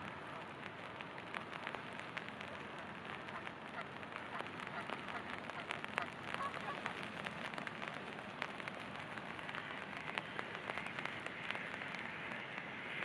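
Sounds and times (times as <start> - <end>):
raindrops striking close: 0.0 - 13.0
steady rain hiss: 0.0 - 13.0.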